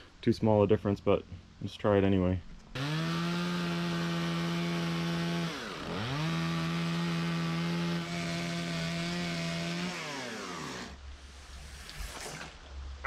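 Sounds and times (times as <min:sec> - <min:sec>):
chainsaw cutting wood: 0:02.7 - 0:11.0.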